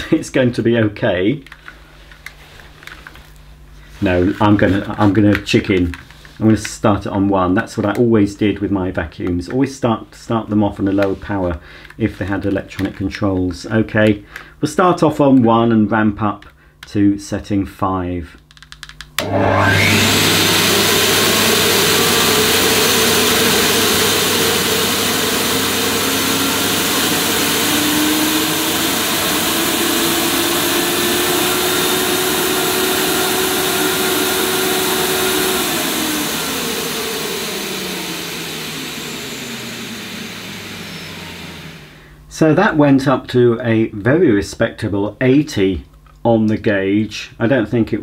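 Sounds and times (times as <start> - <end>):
vacuum cleaner motor: 19.2 - 42.2.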